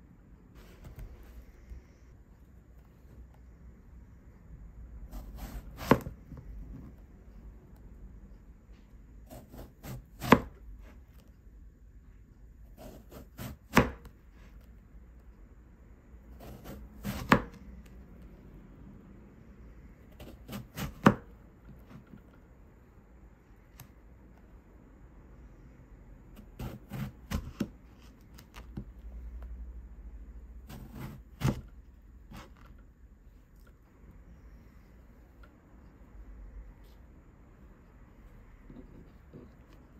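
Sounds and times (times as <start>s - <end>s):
knife slicing eggplant: 5.1s - 6.2s, 9.3s - 11.0s, 12.7s - 14.6s, 16.3s - 17.7s, 20.1s - 22.1s, 26.3s - 28.9s, 30.6s - 32.7s.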